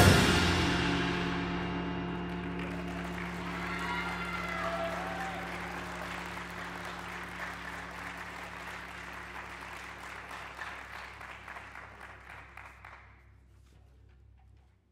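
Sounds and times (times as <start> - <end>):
steady low hum: 0.0 - 14.9
audience applauding: 2.2 - 13.2.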